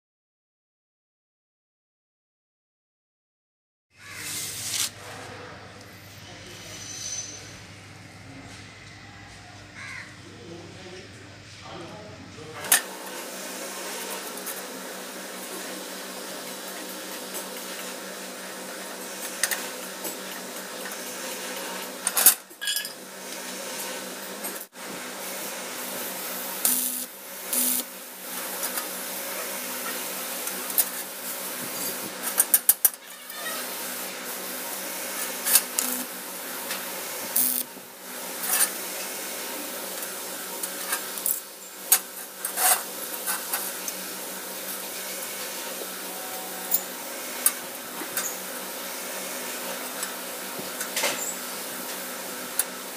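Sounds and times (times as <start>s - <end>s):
steady machine hum: 4.1s - 22.0s, 23.0s - 32.4s, 33.8s - 52.9s.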